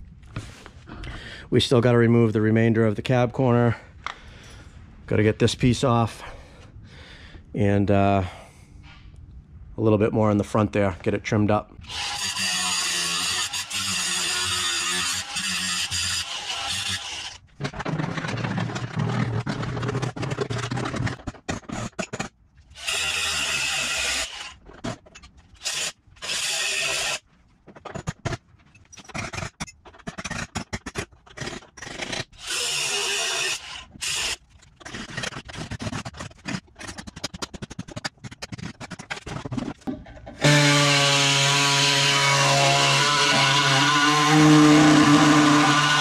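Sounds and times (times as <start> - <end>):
power tool cutting sheet metal: 11.8 - 17.4, 22.8 - 24.6, 25.6 - 27.2, 32.4 - 34.4, 40.4 - 46.0.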